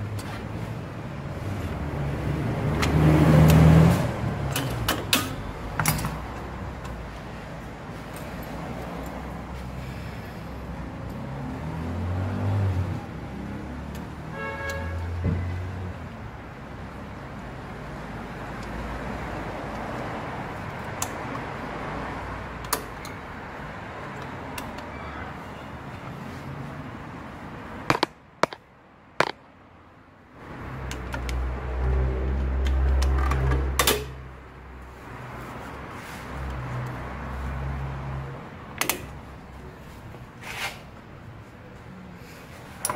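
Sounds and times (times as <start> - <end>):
metallic clicks and taps: 22.6 - 23.2.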